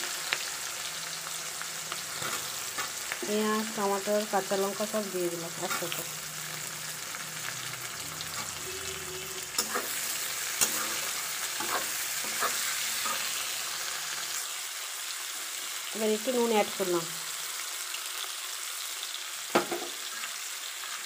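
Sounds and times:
vegetables sizzling in oil: 0:00.0 - 0:21.0
metal spatula stirring: 0:02.1 - 0:03.0, 0:08.2 - 0:13.4.

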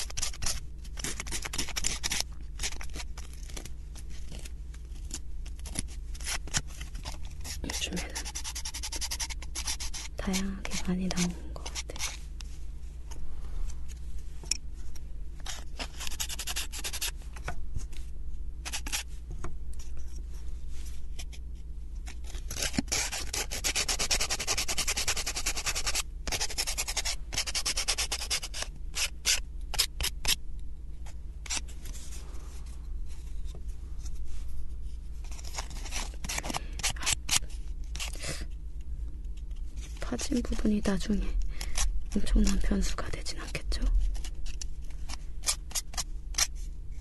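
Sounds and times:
sandpaper rubbing wood: 0:07.4 - 0:10.2, 0:15.5 - 0:17.1, 0:22.6 - 0:30.4.

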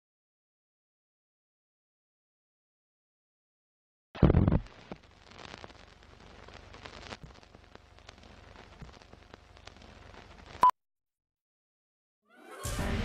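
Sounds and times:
old film crackle and pops: 0:04.2 - 0:10.6.

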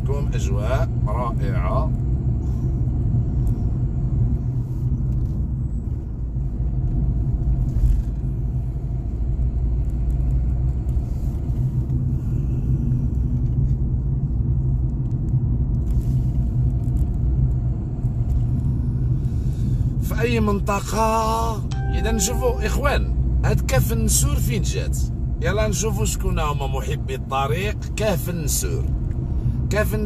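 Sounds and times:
car engine and road rumble: 0:00.0 - 0:30.0.

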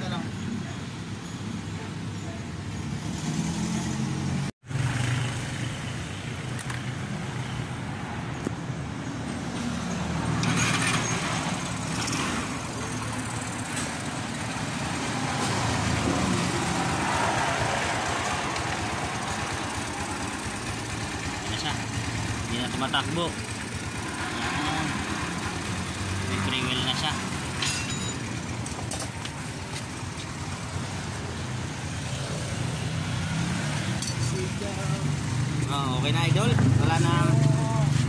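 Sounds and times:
motorcycle engine running: 0:18.0 - 0:31.2.

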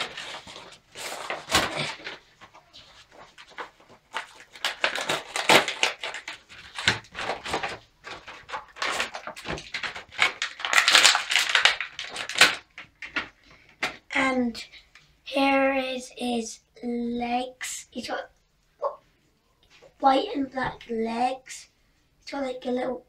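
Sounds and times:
packaging tearing and crinkling: 0:00.0 - 0:14.0.

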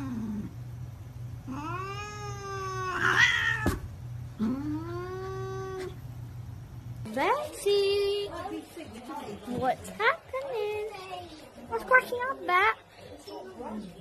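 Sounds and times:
cat meowing: 0:01.5 - 0:03.8.

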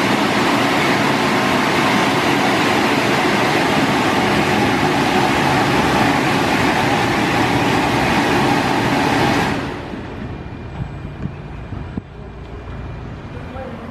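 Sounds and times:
car wash dryer blowers: 0:00.0 - 0:10.3.

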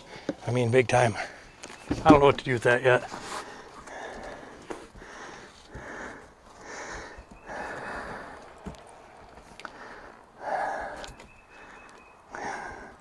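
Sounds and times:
person breathing hard: 0:03.3 - 0:13.0.

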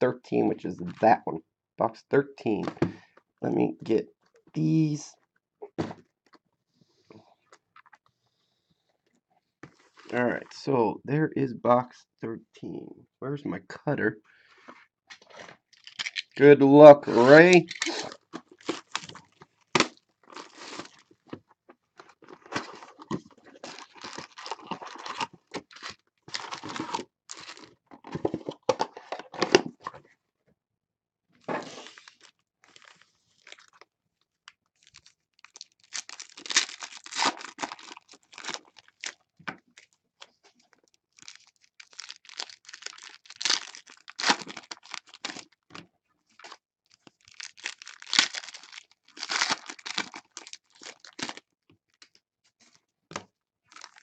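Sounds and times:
card packs crinkling and rustling: 0:15.2 - 0:21.4, 0:22.0 - 0:29.8, 0:31.6 - 0:33.8, 0:34.8 - 0:45.7, 0:46.4 - 0:51.4, 0:53.7 - 0:54.0
foil pack tearing open: 0:17.1 - 0:19.2, 0:22.4 - 0:27.7, 0:34.8 - 0:39.2, 0:41.2 - 0:45.5, 0:46.4 - 0:51.4.

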